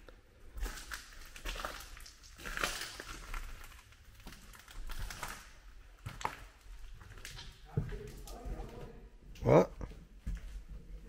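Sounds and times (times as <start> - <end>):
footsteps crunching over debris: 0.5 - 8.9.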